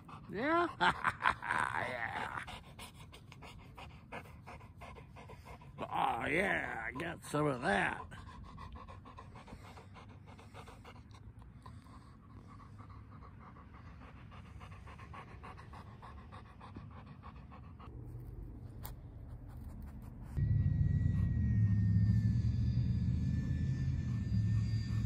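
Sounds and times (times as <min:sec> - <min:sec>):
dog panting: 0:00.0 - 0:20.4
low rumble: 0:17.6 - 0:25.0
faint falling high whine: 0:20.4 - 0:25.0.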